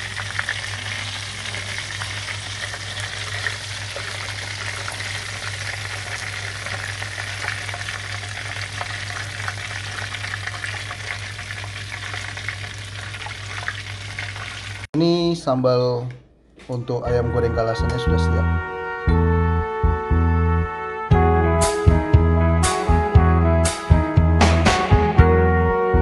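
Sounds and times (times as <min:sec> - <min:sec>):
chicken sizzling in hot oil: 0:00.0 - 0:14.9.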